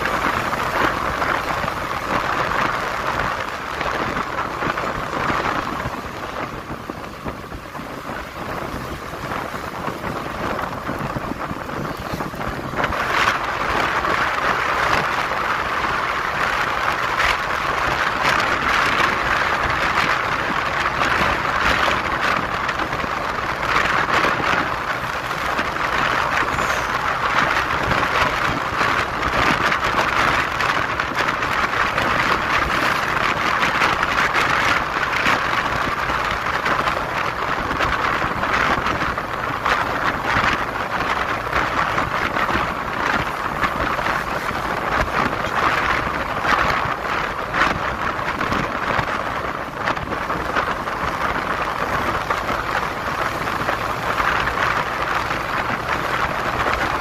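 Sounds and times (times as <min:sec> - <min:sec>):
road and engine noise: 0:00.0 - 0:57.0
wind rushing over microphone: 0:00.0 - 0:57.0.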